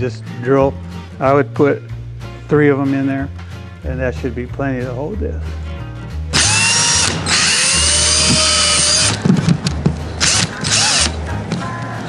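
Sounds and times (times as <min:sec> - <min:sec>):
cordless drill drilling into metal: 0:06.3 - 0:09.2, 0:10.2 - 0:11.2.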